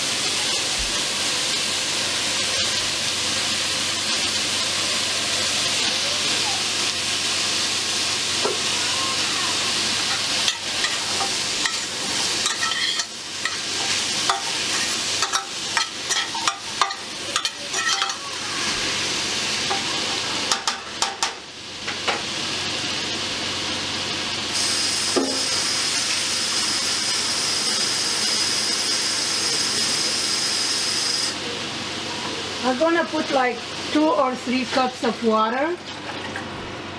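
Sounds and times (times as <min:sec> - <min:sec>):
vegetables sizzling in a pot: 0:00.0 - 0:36.9
metal spoon scraping a pot: 0:10.4 - 0:18.2.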